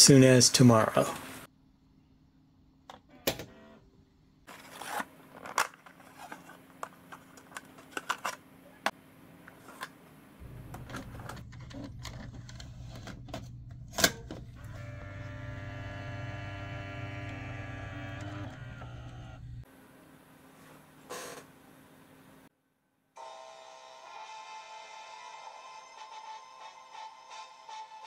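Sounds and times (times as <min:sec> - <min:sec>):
plastic cassette clatter: 0:04.5 - 0:08.4, 0:10.6 - 0:14.3
low machine hum: 0:10.2 - 0:19.7.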